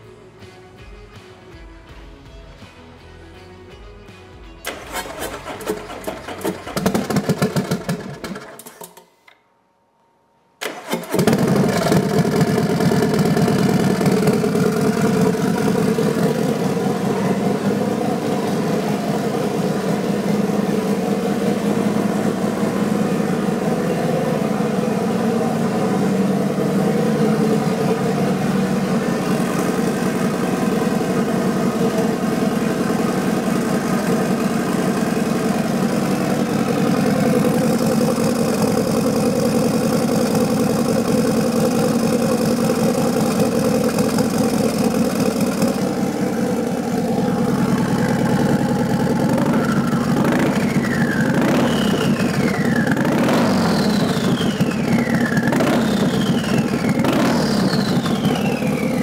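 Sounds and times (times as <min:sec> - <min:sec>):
motorcycle engine idling: 0:04.6 - 0:08.8, 0:10.7 - 0:59.0
engine revving blips: 0:43.4 - 0:59.0.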